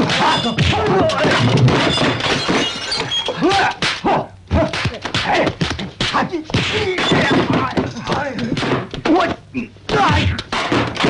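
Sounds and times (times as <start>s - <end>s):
fighters shouting and grunting: 0.0s - 2.2s, 3.3s - 11.0s
punch and block impacts: 9.9s - 11.0s.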